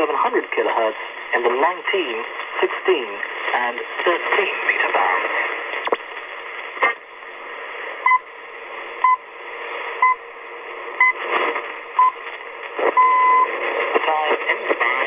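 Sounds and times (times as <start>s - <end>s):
static crackle: 0.0s - 15.0s
radio time signal beeps: 12.9s - 13.5s.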